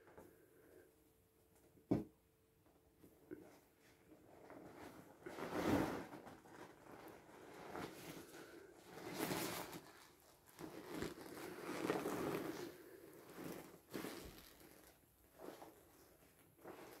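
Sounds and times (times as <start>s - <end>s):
inflatable vinyl crinkling: 3.8s - 17.0s.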